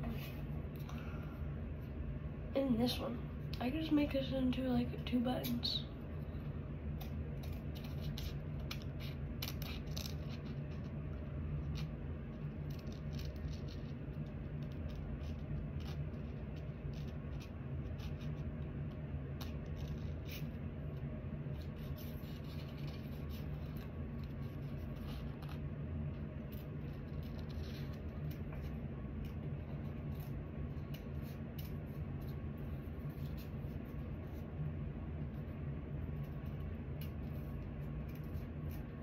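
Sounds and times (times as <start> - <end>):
steady low hum: 0.0 - 39.0
scissors snipping paper: 7.0 - 10.8.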